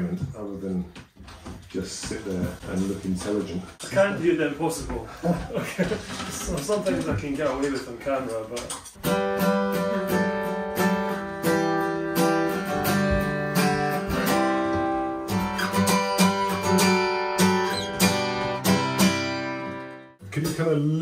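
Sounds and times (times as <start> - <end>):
acoustic guitar strumming: 8.8 - 21.0.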